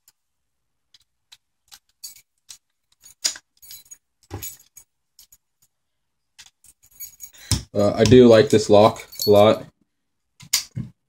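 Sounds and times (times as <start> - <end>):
keys jangling: 2.9 - 5.4, 6.6 - 7.5, 9.0 - 9.6.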